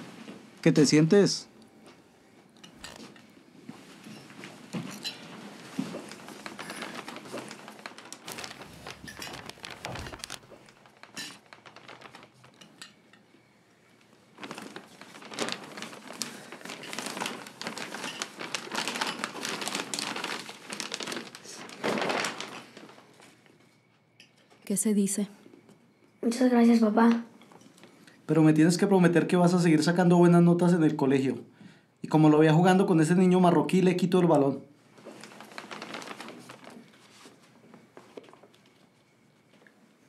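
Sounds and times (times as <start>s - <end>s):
cutlery and dishes clinking: 2.6s - 3.3s, 4.0s - 5.3s
wrapping paper crinkling: 5.3s - 13.0s, 14.0s - 23.5s, 34.9s - 38.9s.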